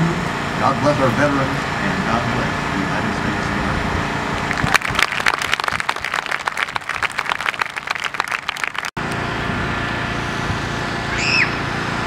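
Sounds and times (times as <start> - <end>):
crowd applauding: 4.4 - 9.0.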